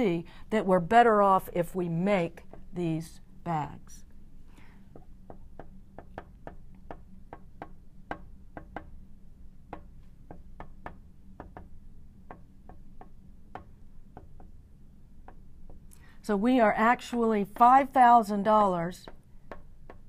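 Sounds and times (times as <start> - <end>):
marker tapping on glass: 4.9 - 9.0, 9.7 - 14.6, 19.0 - 20.0.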